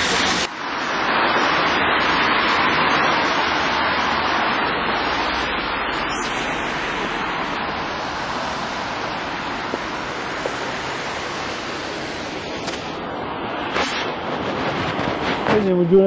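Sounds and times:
rain falling: 0.0s - 16.0s.

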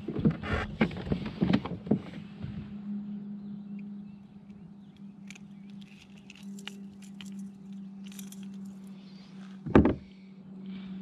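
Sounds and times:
steady low hum: 0.0s - 11.0s
hooks and pliers clicking: 5.0s - 8.9s.

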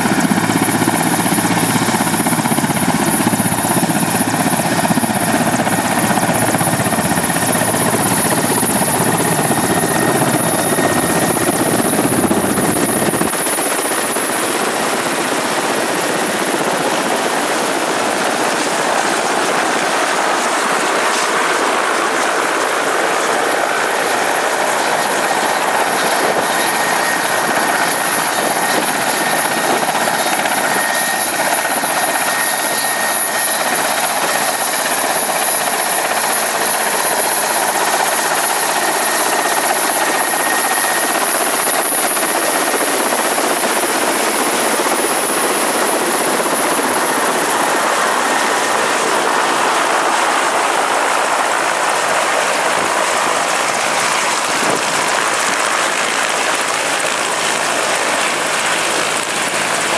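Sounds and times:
helicopter rotor and turbine noise: 0.0s - 59.9s.

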